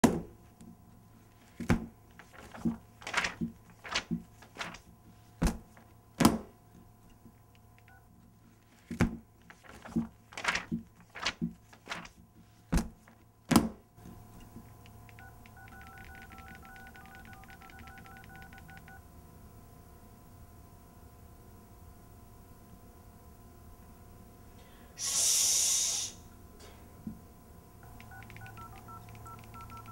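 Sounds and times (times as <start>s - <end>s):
phone keypad beeps: 15.1s - 19.0s, 27.8s - 29.9s.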